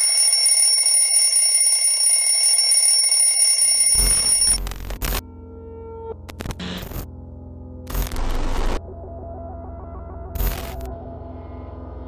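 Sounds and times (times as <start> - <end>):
timer alarm ringing: 0.0 - 4.6.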